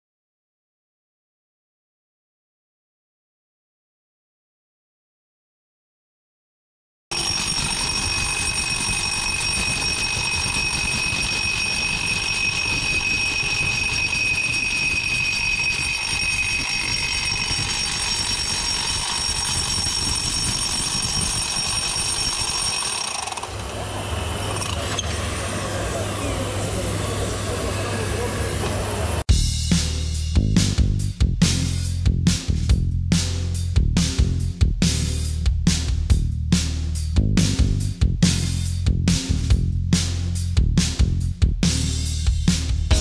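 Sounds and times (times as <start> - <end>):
rotary hammer drilling into concrete: 7.1 - 23.7
vacuum high whine: 23.4 - 29.3.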